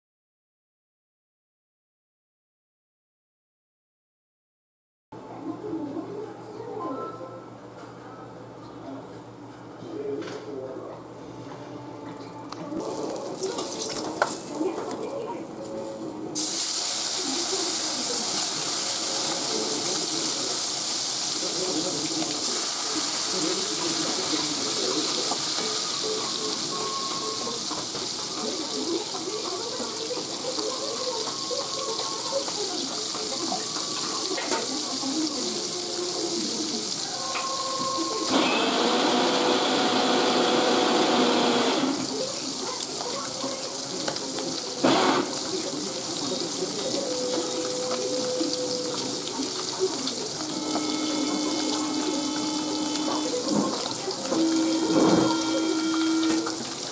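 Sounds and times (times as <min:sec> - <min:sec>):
fish sizzling in hot oil: 0:16.4 - 0:56.9.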